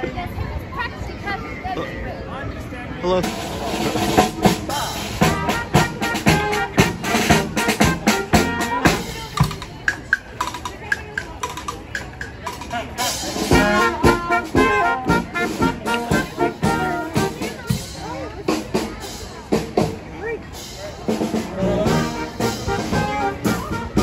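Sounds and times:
brass band playing: 3.2 - 9.7, 13.0 - 19.9, 20.6 - 24.0
bass drum beats: 3.2 - 19.0.

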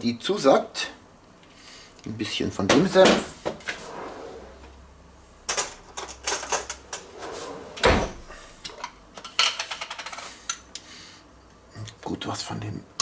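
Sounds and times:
utensils clicking and clattering: 5.5 - 7.4, 8.6 - 10.6.

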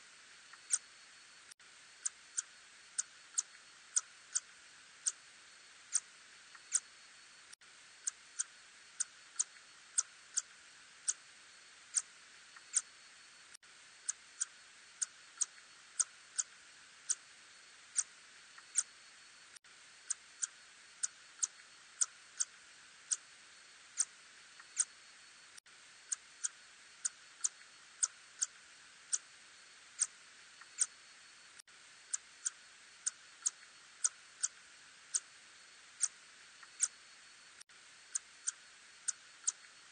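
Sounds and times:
steady hiss: 0.0 - 39.9.

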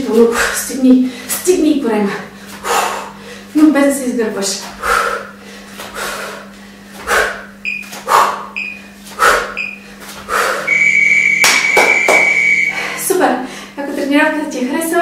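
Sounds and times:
heavy breathing: 2.2 - 3.6, 4.8 - 10.7, 12.7 - 13.8
timer beeps: 7.6 - 7.9, 8.6 - 8.9, 9.6 - 9.8, 10.7 - 12.8.

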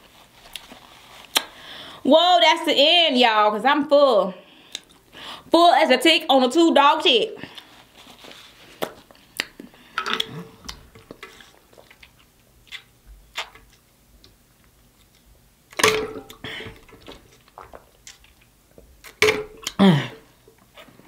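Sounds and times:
lip smacks while chewing: 8.7 - 14.4.

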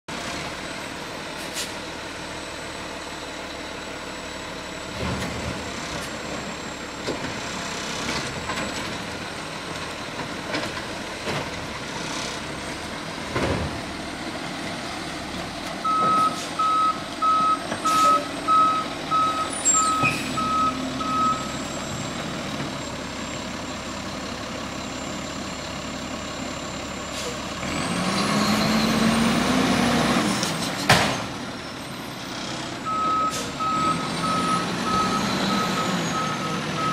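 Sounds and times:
garbage truck engine: 0.1 - 36.9
backup alarm beeping: 15.8 - 21.6.

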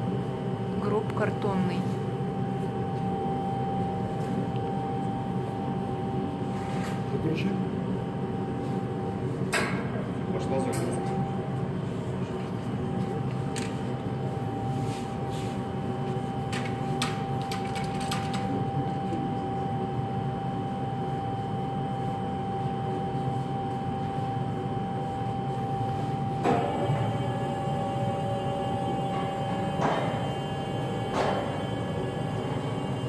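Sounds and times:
mechanical hum: 0.0 - 33.0
mid-pitched whine: 0.0 - 33.0.

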